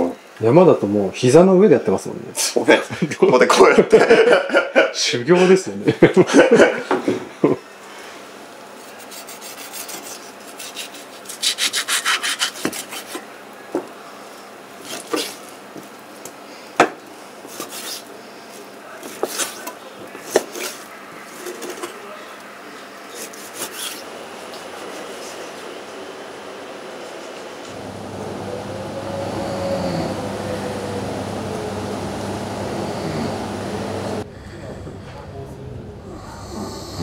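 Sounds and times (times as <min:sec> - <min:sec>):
knife sawing meat: 0:08.9 - 0:13.3.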